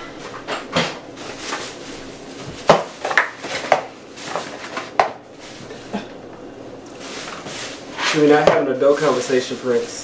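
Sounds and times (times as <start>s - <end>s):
household items knocking and clattering: 2.4s - 5.2s, 8.1s - 8.7s.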